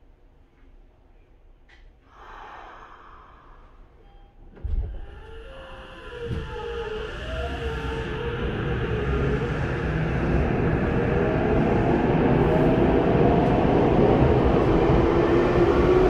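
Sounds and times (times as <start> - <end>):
train motors whining rising in pitch: 5.2 - 16.0.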